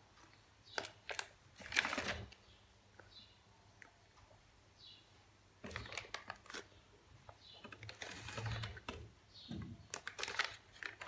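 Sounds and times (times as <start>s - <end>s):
plastic packet crinkling: 0.7s - 2.4s, 5.6s - 6.8s, 7.6s - 9.0s, 9.9s - 11.0s.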